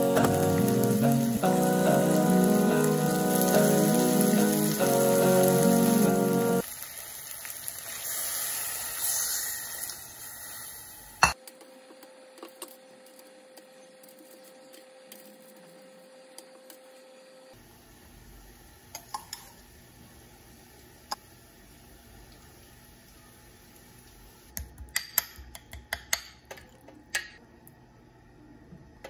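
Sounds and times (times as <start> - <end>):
meat sizzling in a pot: 0.0 - 11.4.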